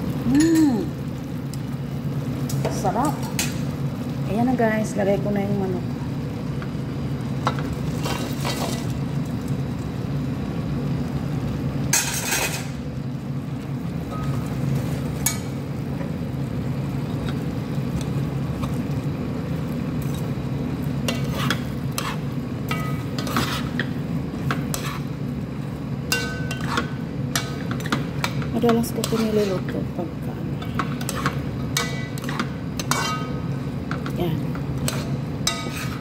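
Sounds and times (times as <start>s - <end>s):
steady low hum: 0.0s - 36.0s
metal spoon scraping a pot: 21.1s - 25.1s, 26.1s - 29.8s, 30.6s - 33.5s, 34.8s - 36.0s.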